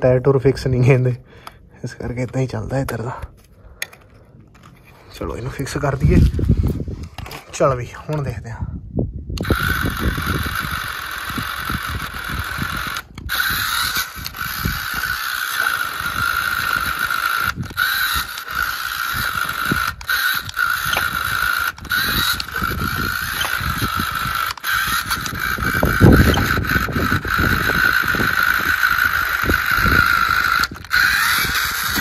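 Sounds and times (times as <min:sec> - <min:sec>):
electric motor whining: 0:09.4 - 0:32.0
wheels grinding in gravel: 0:09.5 - 0:32.0.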